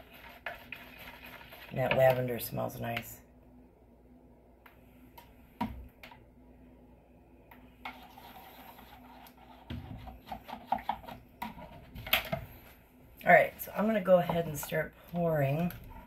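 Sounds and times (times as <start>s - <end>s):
soft stirring: 0.0s - 3.1s, 7.5s - 16.0s.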